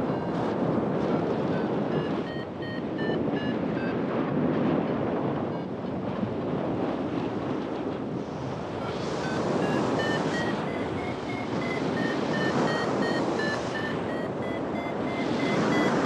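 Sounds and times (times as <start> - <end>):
wind on microphone: 0.0 - 16.0
short electronic beeps: 1.5 - 4.0, 9.2 - 16.0.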